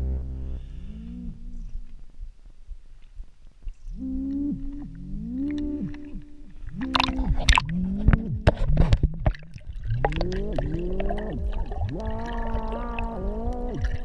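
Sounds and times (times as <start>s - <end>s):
water splashing and gurgling: 3.6s - 14.0s.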